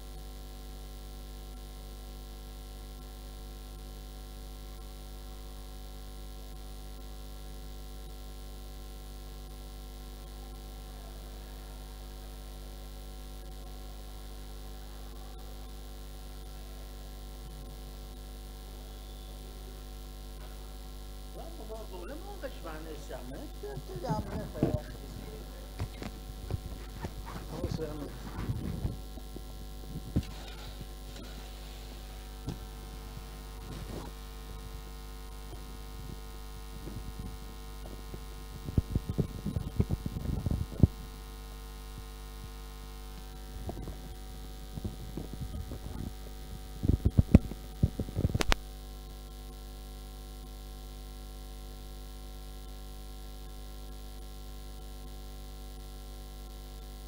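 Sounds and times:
electrical mains hum: 0.0 - 57.0
steady tones: 20.4 - 35.8.

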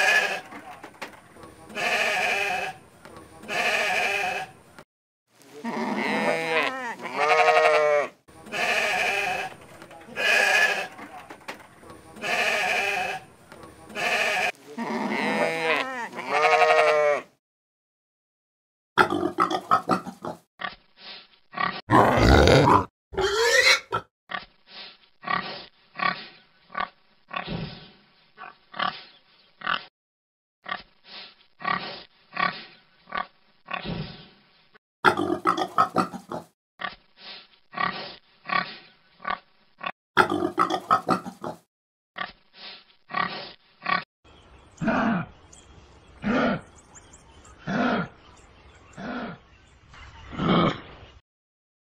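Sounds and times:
sheep bleating: 0.0 - 0.6, 1.7 - 2.8, 3.4 - 4.6, 5.6 - 11.1, 12.2 - 13.2, 13.9 - 17.3
pigs grunting: 19.0 - 20.5, 21.5 - 24.4, 25.2 - 29.0, 31.6 - 34.4, 35.0 - 36.5, 37.7 - 41.7, 43.1 - 44.1, 44.8 - 45.3, 46.2 - 46.7, 47.6 - 48.2, 48.9 - 49.5, 50.3 - 50.9.

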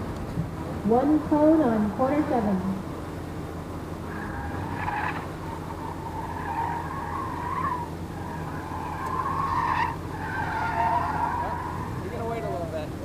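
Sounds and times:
car engine idling: 0.0 - 13.0
tyre squeal: 4.0 - 12.5.

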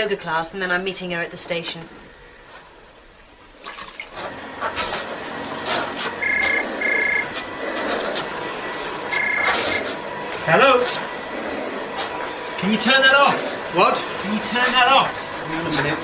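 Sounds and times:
vacuum cleaner on carpet: 3.5 - 16.0
telephone ringing: 4.3 - 7.5, 8.6 - 11.3.

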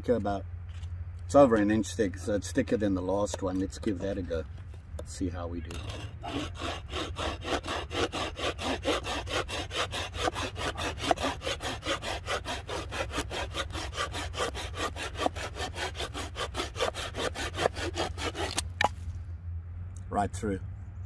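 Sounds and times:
hand saw cutting branch: 5.6 - 19.2.

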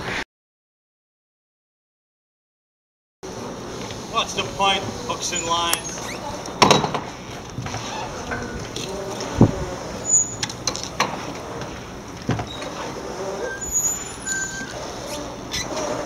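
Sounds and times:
steady background hiss: 3.3 - 16.0
brief high squeaks: 5.3 - 6.4, 10.0 - 10.5, 12.5 - 16.0.

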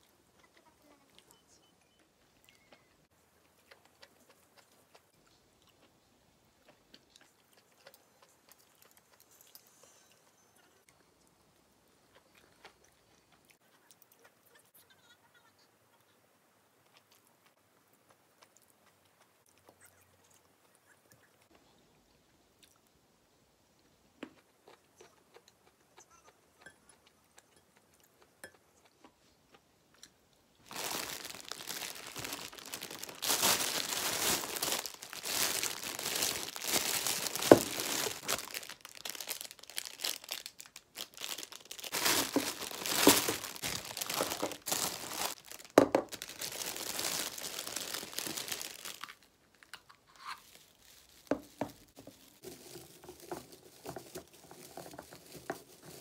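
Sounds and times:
plastic wrapping crinkling: 30.6 - 56.0.

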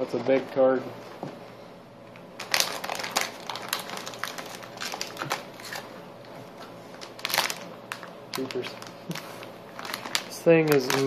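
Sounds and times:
plastic bag crinkling: 2.4 - 6.0, 6.9 - 11.0.

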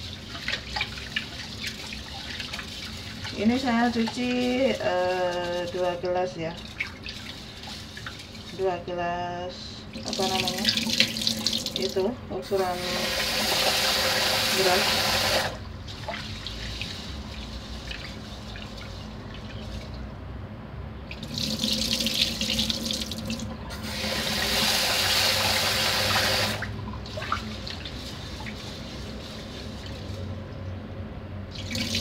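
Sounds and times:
water sloshing with rice: 0.0 - 8.6, 15.6 - 20.2, 25.4 - 30.4
faucet running into pot: 10.0 - 12.0, 12.6 - 17.0, 21.1 - 28.8.

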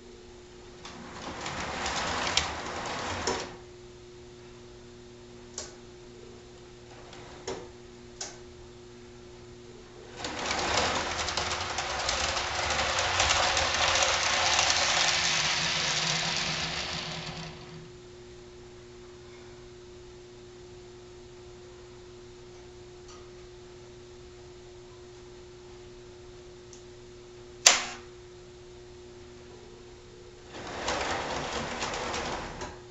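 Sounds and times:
faint hum: 0.0 - 32.9
model train wheels clattering on rail: 0.8 - 3.6, 10.2 - 17.9, 30.5 - 32.8.

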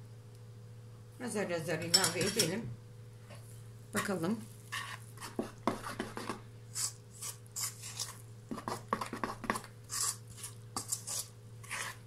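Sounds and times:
steady low hum: 0.0 - 12.0
spoon stirring dough in metal bowl: 4.0 - 12.0.

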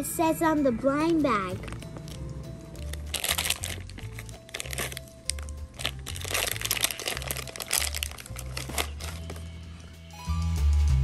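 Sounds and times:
background music with bass line: 1.2 - 11.0
packaging crinkling and rustling: 2.8 - 9.5.

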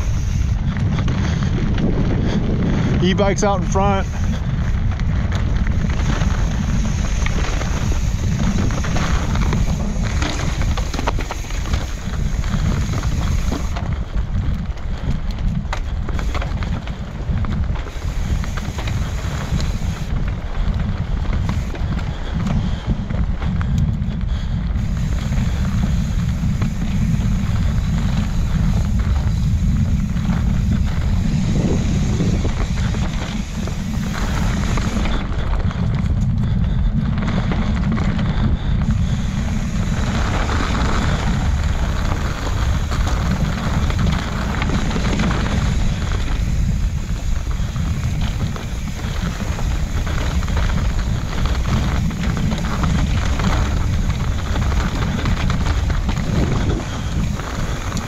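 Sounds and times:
bike knocks and rattles: 0.0 - 58.0
wind buffeting microphone: 0.0 - 58.0.

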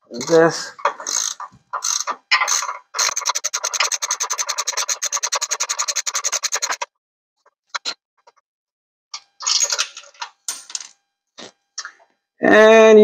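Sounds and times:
ratchet clicking rapidly: 0.1 - 0.4, 1.0 - 6.9
metal tool scraping: 0.1 - 6.9.

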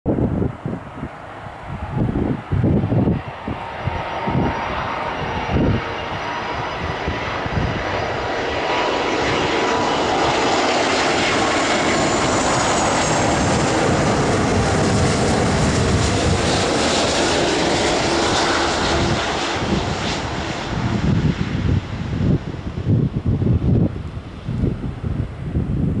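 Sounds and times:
jet engines rushing noise: 0.1 - 26.0
wind gusts on microphone: 0.1 - 26.0.

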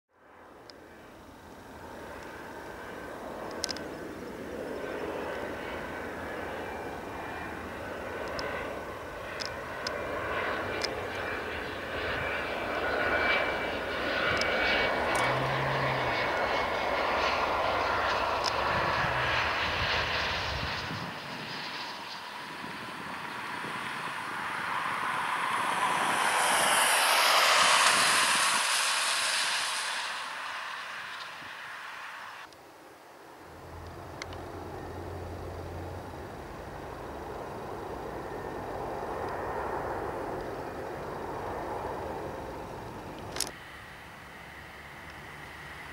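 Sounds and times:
jet engines whining and roaring: 0.3 - 45.9.

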